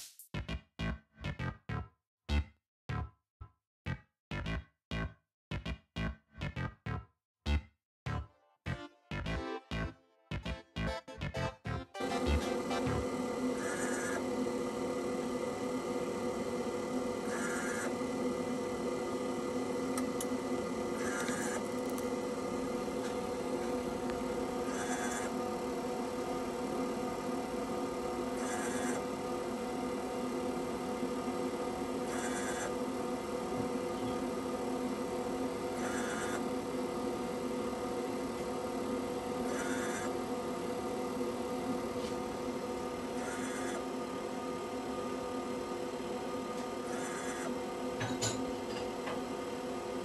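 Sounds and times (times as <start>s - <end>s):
machine hum: 10.4s - 50.0s
short high noisy machine sounds: 12.0s - 38.0s, 43.2s - 44.6s.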